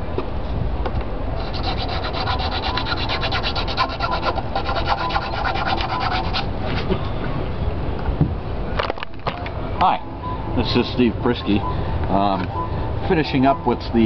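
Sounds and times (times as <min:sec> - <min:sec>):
abrasive rubbing wood: 0:01.4 - 0:06.9.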